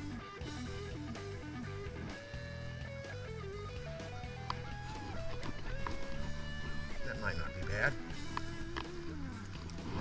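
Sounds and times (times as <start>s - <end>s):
guitar melody: 0.0s - 10.0s
low accompaniment: 0.0s - 10.0s.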